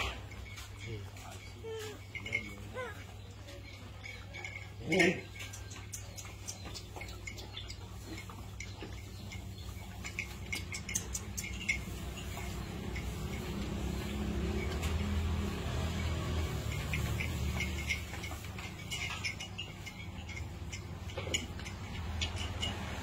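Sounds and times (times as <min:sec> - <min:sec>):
clicks and scrapes in metal pot: 0:03.2 - 0:13.5.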